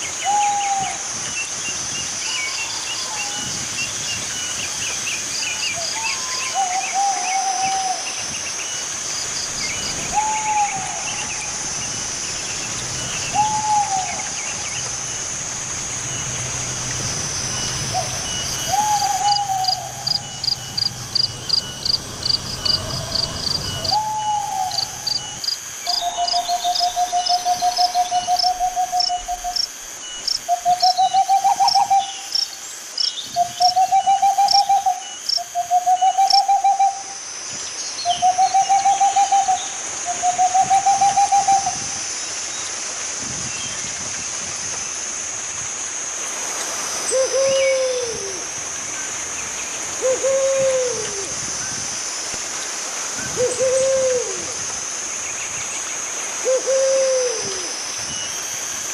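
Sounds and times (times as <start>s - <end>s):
high insect buzz: 8.0s - 33.2s
high chirps: 9.8s - 29.4s
owl hooting: 9.8s - 29.6s, 30.5s - 32.3s, 33.4s - 37.2s, 38.1s - 41.8s, 47.1s - 48.4s, 50.0s - 51.3s, 53.4s - 54.6s, 56.4s - 57.7s.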